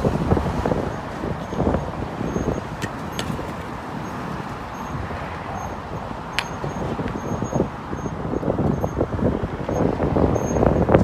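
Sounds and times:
road traffic: 0:00.0 - 0:11.0
wind buffeting microphone: 0:00.0 - 0:11.0.

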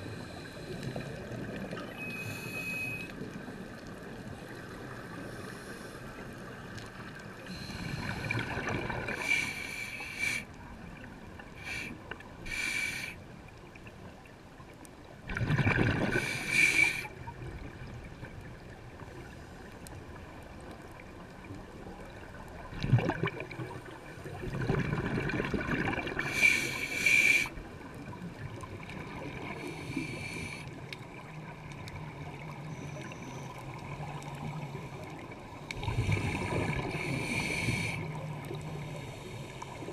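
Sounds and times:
underwater exhaled bubbles: 0:00.0 - 0:09.8, 0:15.2 - 0:39.9.

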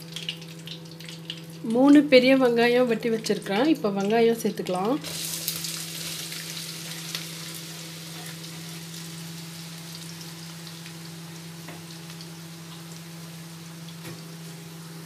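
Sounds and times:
onions sizzling in hot oil: 0:04.5 - 0:15.0.

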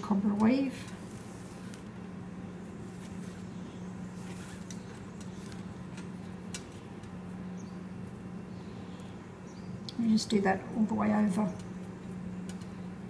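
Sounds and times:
steady low hum: 0:00.0 - 0:13.0
cord rustling: 0:00.8 - 0:02.0, 0:02.7 - 0:07.2.

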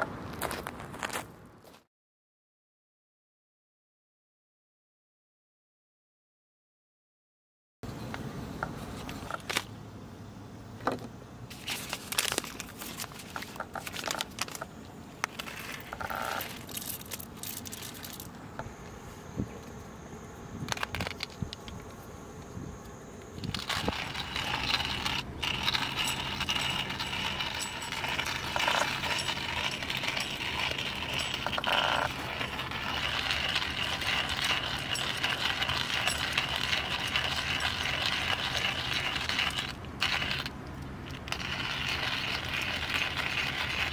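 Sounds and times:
coffee bag clicks and rustles: 0:11.5 - 0:18.4
hand-cranked coffee grinder rattling: 0:11.6 - 0:18.3, 0:23.4 - 0:40.5, 0:41.1 - 0:43.9.

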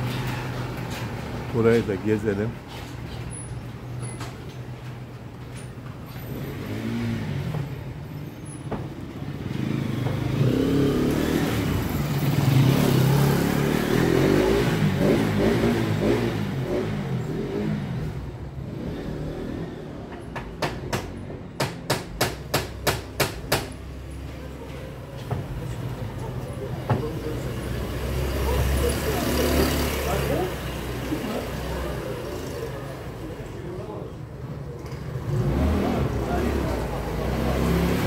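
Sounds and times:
vehicle engine passing by: 0:06.3 - 0:07.6, 0:09.3 - 0:19.9, 0:27.1 - 0:34.0, 0:34.9 - 0:38.0.

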